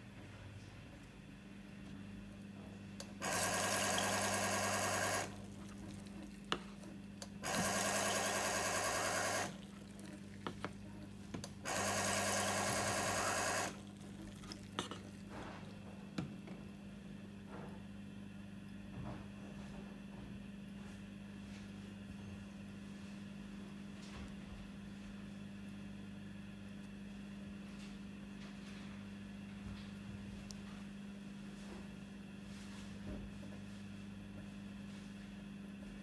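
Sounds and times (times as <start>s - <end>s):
filling machine pulsing: 3.1s - 5.6s, 7.2s - 10.6s, 11.4s - 14.1s.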